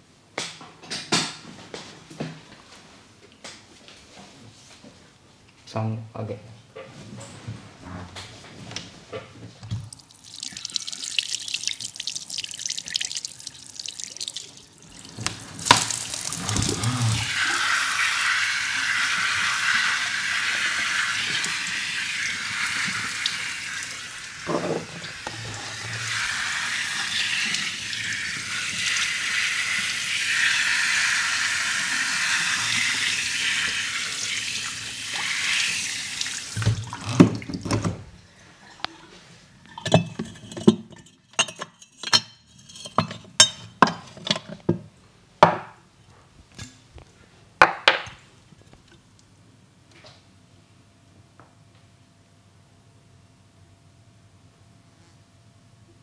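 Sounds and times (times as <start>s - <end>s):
tap water running into sink: 9.7s - 38.0s.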